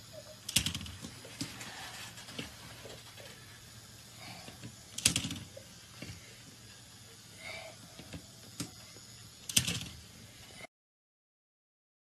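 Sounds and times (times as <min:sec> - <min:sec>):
toy robot clicking on wooden floor: 0:00.5 - 0:03.3, 0:04.9 - 0:05.5, 0:09.5 - 0:10.0.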